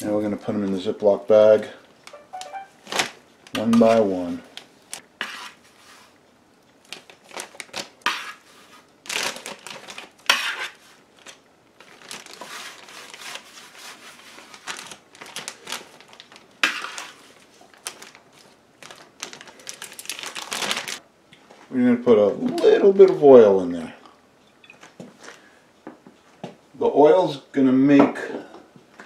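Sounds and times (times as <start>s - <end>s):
plastic bag crinkling: 2.8s - 4.0s, 6.8s - 8.0s, 9.0s - 10.3s, 11.1s - 13.4s, 14.4s - 21.0s.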